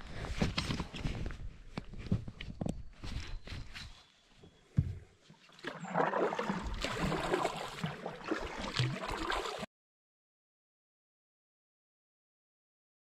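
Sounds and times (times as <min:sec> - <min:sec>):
paddle splashing water: 0:05.3 - 0:09.7.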